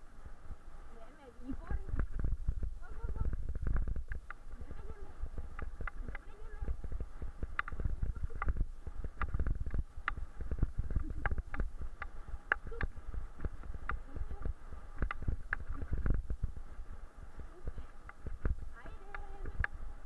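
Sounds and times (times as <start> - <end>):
bicycle rumbling over bumps: 1.4 - 20.0
bike clicking and rattling: 5.4 - 14.4.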